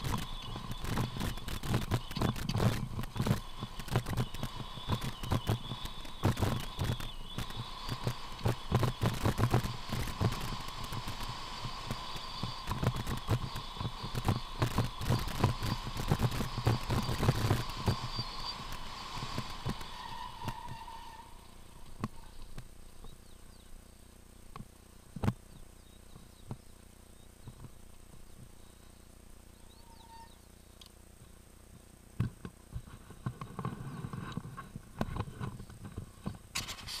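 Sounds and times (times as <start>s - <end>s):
mountain bike rattling on dirt trail: 0.0s - 23.6s
bike ticking on grass: 0.0s - 37.0s
thin steady whine: 0.0s - 37.0s.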